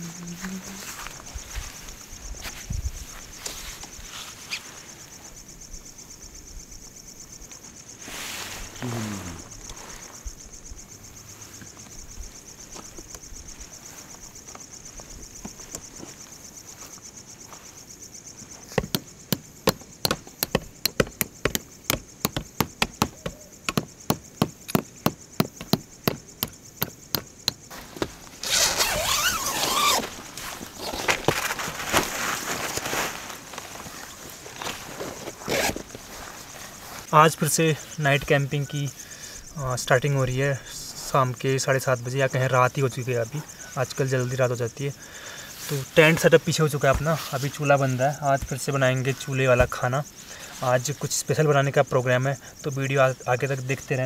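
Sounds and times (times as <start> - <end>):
tent fabric rustling: 0.0 - 5.4, 7.9 - 10.2, 27.7 - 37.2, 45.5 - 48.1
crickets chirping: 0.0 - 54.0.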